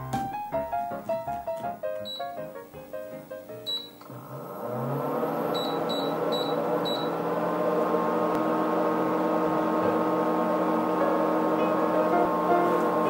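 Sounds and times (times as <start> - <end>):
background music: 0.0 - 4.0
keypad beeps: 2.0 - 2.4, 3.7 - 4.1, 5.6 - 7.1
kitchen appliance motor hum: 3.7 - 13.0.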